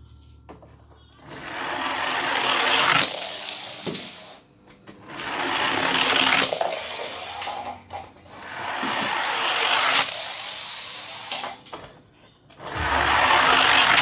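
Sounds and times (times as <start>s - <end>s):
toy cars rolling down a tube: 1.3s - 4.4s, 5.0s - 11.7s, 12.6s - 14.0s.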